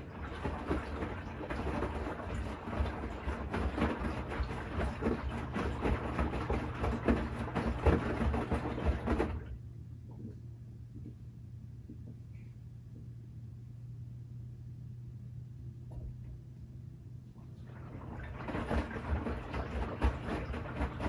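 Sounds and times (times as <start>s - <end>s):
washing machine drum tumbling laundry: 0.0s - 10.4s, 17.4s - 21.0s
low steady hum: 0.0s - 21.0s.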